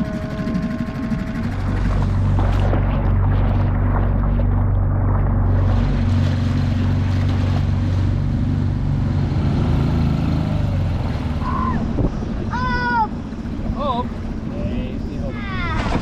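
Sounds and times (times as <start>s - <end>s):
outboard motor running: 0.0s - 16.0s
water rushing past hull: 0.0s - 16.0s.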